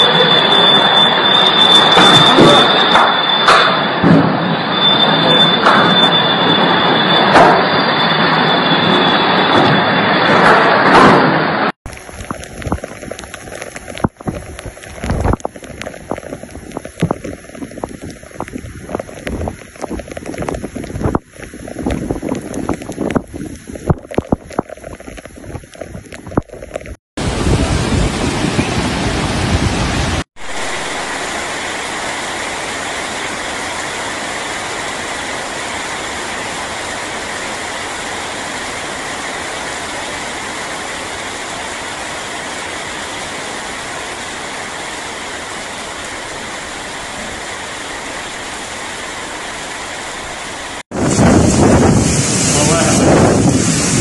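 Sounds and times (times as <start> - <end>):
heavy downpour hissing: 0.0 - 2.9, 11.9 - 26.4, 27.2 - 54.0
windblown rain: 0.0 - 54.0
wind buffeting microphone: 12.2 - 30.2, 50.9 - 54.0.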